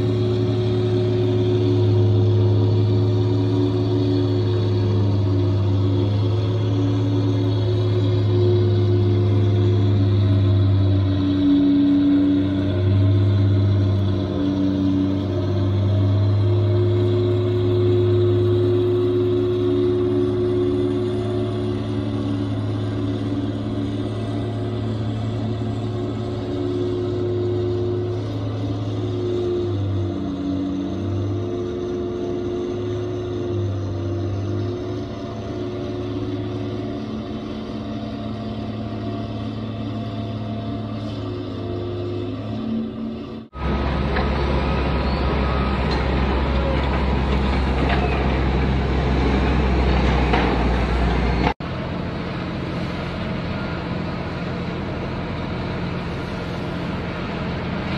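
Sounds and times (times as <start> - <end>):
diesel engines droning: 0.0 - 57.9.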